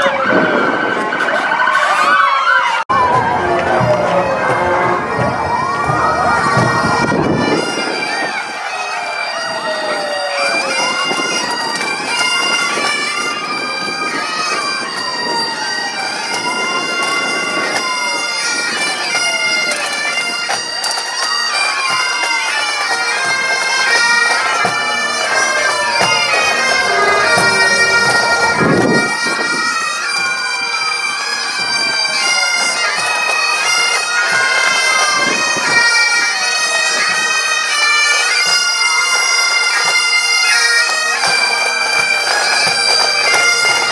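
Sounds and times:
siren wailing: 0.0s - 20.2s, 23.4s - 30.4s
bagpipes playing: 1.7s - 43.9s.

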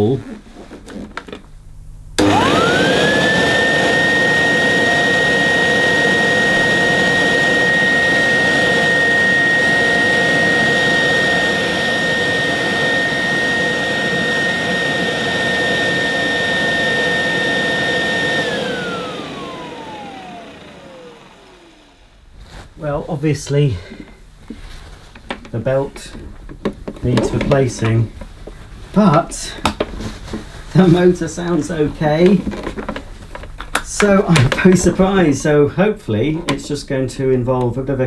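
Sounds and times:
vacuum cleaner motor whining: 2.2s - 22.6s.

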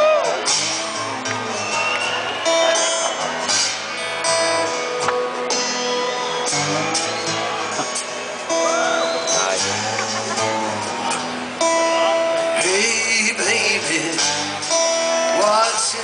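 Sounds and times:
live band music: 0.0s - 16.0s
strummed acoustic guitars: 0.0s - 16.0s.

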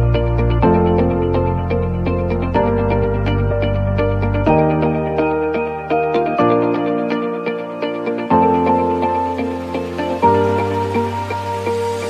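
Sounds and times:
plucked notes over bass: 0.0s - 6.8s.

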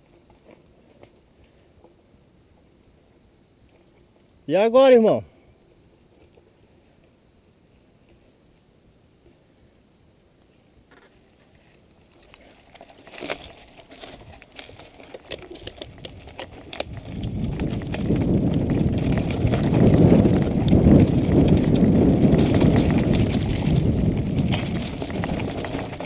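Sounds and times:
bike rattling over stones: 12.2s - 26.0s
tyre rumble: 12.6s - 26.0s
wind on microphone: 15.6s - 26.0s.

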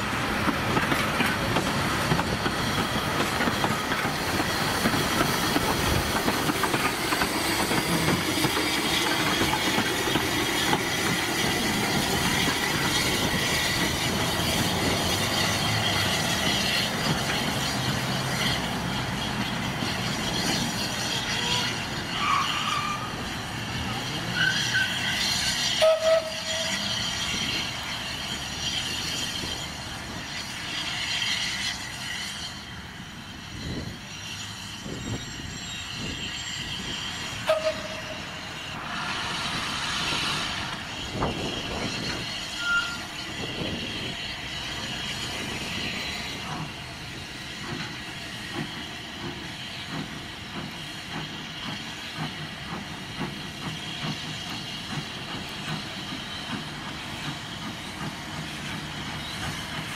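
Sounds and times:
steam hissing from locomotive: 0.0s - 59.9s
wheel squeaks: 41.1s - 44.1s.

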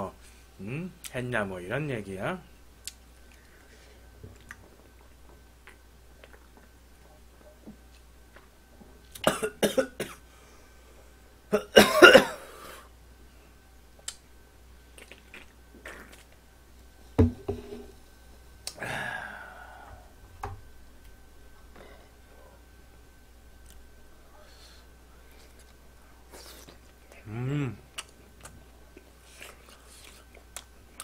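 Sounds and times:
man coughing: 9.2s - 10.2s, 11.5s - 12.5s.

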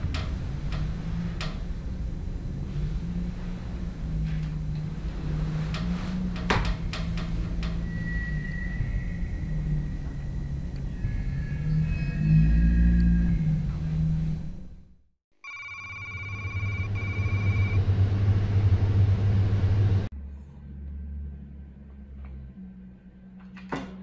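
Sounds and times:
low rumble: 0.0s - 15.0s, 16.9s - 23.6s
low hum: 0.0s - 15.1s, 15.9s - 24.0s
warbling electronic ringing tone: 15.4s - 17.8s.

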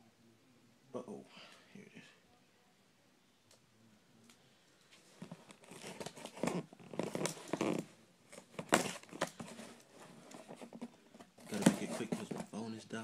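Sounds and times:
tape tearing: 5.2s - 12.5s
cardboard box rustling open: 5.2s - 12.6s.

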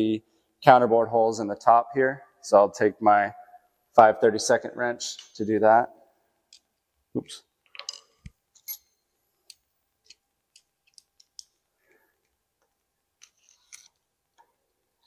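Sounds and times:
small metallic clicks of screws: 13.2s - 14.5s.

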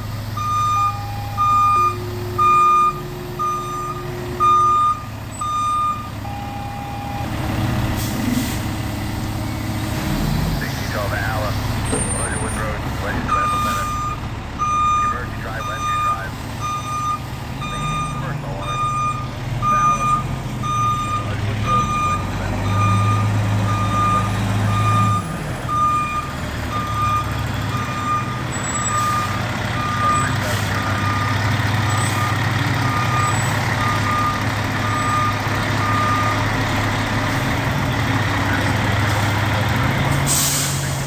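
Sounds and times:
diesel engine running: 0.0s - 41.0s
reverse alarm beeping: 0.4s - 7.3s, 12.4s - 36.5s.

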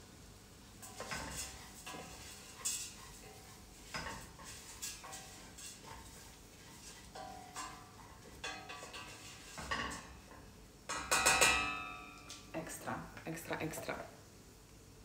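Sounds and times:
spoon clinking in metal pot: 7.2s - 10.3s, 10.9s - 12.4s.

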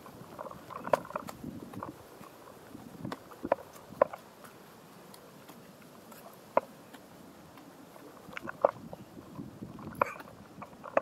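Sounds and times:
sharp knocks on rocks: 3.0s - 4.6s.

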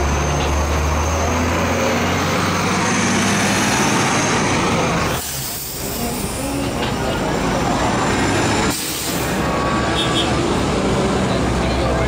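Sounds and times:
bus engine droning: 0.0s - 12.0s
street traffic: 0.0s - 12.0s.

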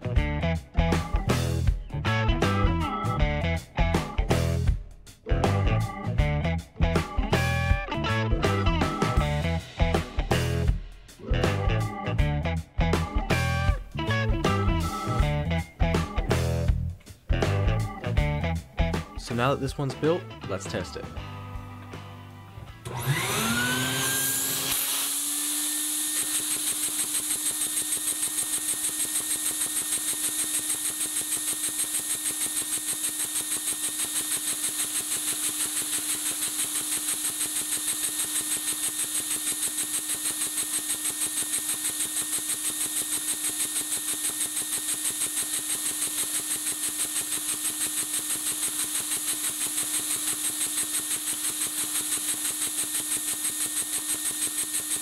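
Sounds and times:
vacuum cleaner whine: 22.8s - 55.0s
toy engine rapid pulsing: 22.9s - 55.0s.

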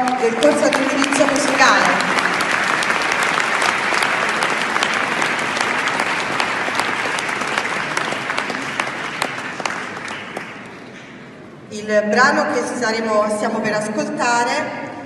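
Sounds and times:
audience applauding: 0.0s - 11.2s.

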